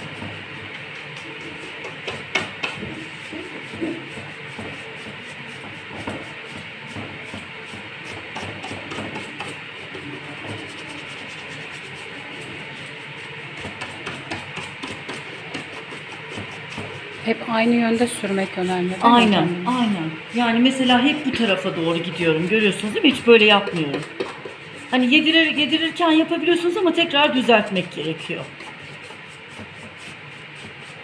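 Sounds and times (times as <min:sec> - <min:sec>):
brush rubbing over wood: 0:10.1 - 0:13.2, 0:14.0 - 0:22.9.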